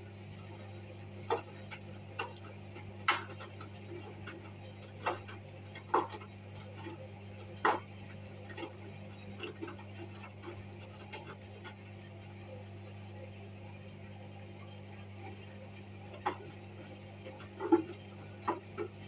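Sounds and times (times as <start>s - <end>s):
washing machine humming: 0.0s - 19.0s.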